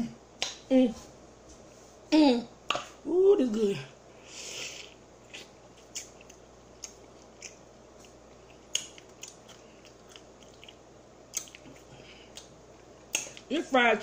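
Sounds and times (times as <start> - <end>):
mouth clicks and smacks chewing: 5.3 - 13.5.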